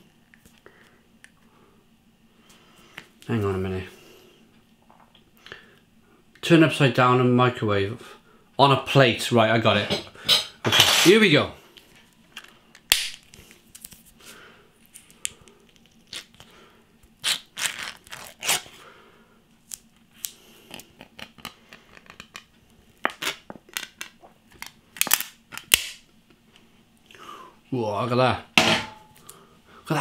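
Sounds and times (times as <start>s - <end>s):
lid tearing and crinkling: 17.2s - 18.7s, 23.1s - 26.0s.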